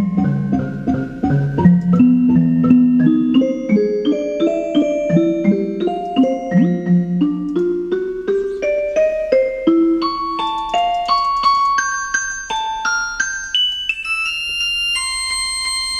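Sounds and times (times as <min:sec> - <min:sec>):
synthesizer playing single notes: 0:00.0 - 0:08.5.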